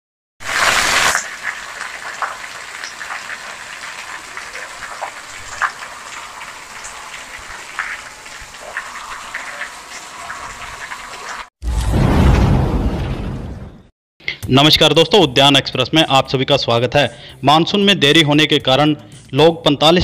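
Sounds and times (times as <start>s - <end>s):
drips and splashes: 0.4s - 11.5s
heavy rain on concrete: 0.4s - 11.5s.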